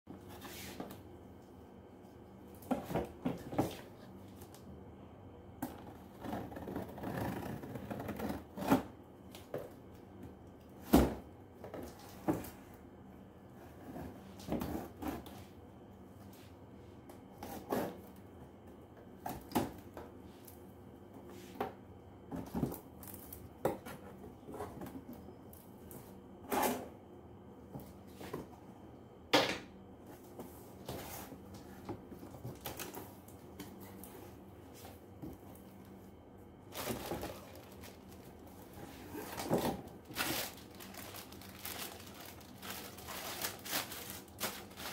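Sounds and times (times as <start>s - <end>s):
cardboard rustling: 36.7s - 44.9s.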